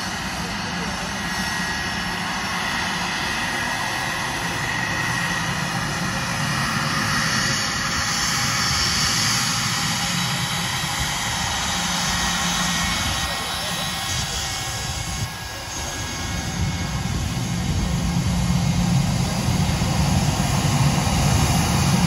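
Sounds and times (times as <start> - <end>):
jet engines hissing and whining: 0.0 - 22.0.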